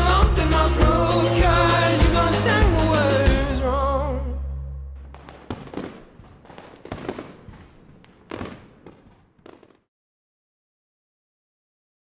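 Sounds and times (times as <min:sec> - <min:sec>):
fireworks popping and crackling: 0:05.0 - 0:09.9.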